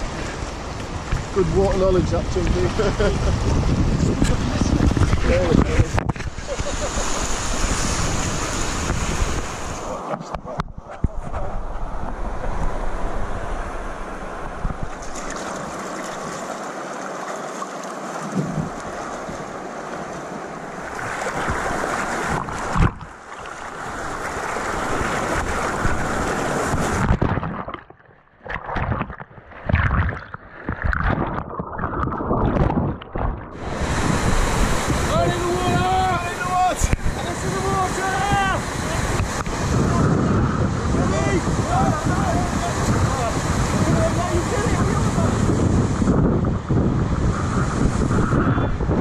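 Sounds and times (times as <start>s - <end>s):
water splashing against raft: 0.0s - 12.8s, 14.1s - 46.2s
wind on microphone: 0.0s - 16.1s, 18.2s - 19.7s, 20.7s - 27.9s, 28.5s - 49.0s
river rapids rushing: 15.1s - 22.8s, 33.6s - 40.1s.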